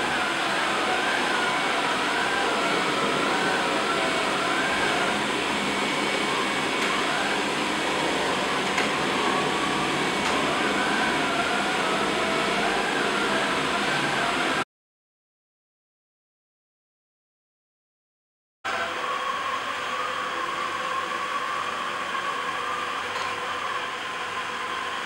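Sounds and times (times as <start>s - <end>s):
faint wavering whine: 0.0s - 14.6s
robot vacuum running: 0.0s - 14.6s.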